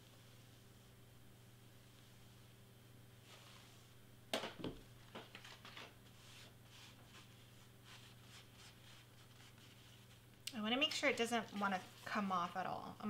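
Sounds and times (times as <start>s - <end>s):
sheet crinkling and rustling: 5.0s - 6.2s.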